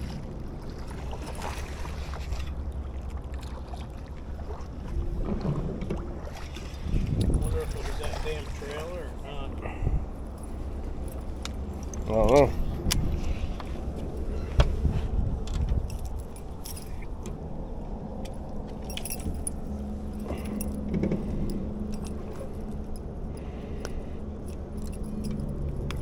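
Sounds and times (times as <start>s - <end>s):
steady low hum: 0.0s - 26.0s
metallic clicks and jingling: 15.4s - 17.3s, 18.2s - 26.0s.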